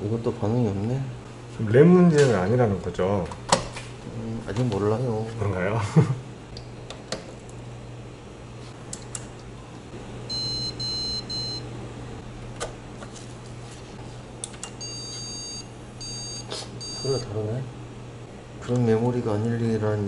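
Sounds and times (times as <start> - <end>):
steady low hum: 0.0 - 20.0
short high-pitched computer beeps: 14.8 - 17.2.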